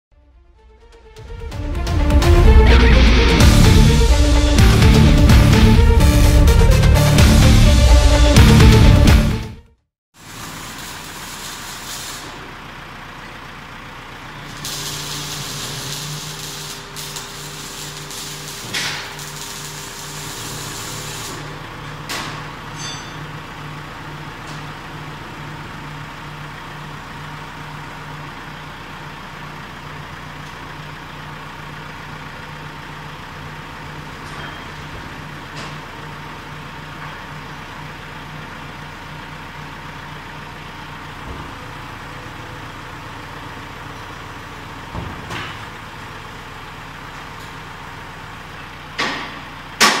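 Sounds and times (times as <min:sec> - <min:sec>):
truck engine humming: 0:00.2 - 0:50.0
loud metal clunk: 0:22.0 - 0:23.3, 0:49.0 - 0:50.0.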